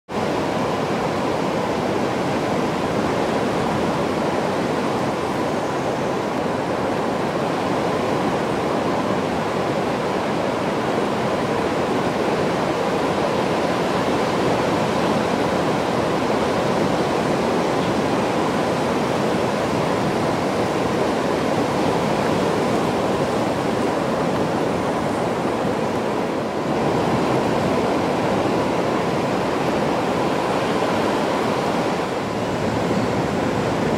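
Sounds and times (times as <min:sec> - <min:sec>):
steady rushing noise: 0:00.1 - 0:33.9.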